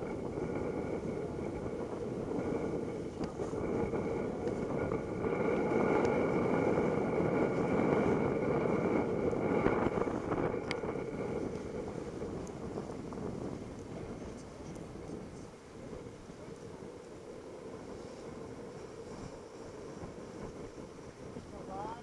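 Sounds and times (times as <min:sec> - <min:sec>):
water rushing along a hull: 0:00.0 - 0:22.0
wind buffeting microphone: 0:00.0 - 0:22.0.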